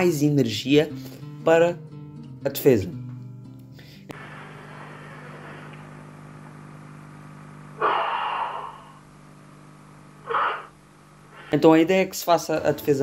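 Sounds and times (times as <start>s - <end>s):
low hum: 4.1s - 11.5s
forceful breathing: 7.8s - 9.0s, 10.2s - 11.6s.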